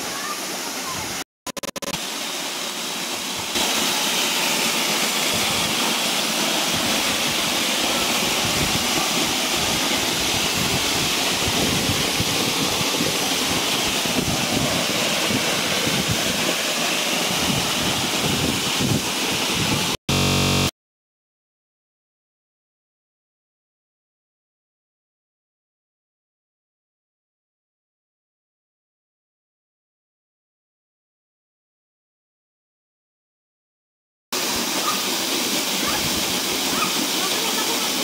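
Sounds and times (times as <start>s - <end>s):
waterfall pouring onto rocks: 2.0s - 20.0s, 34.4s - 38.0s.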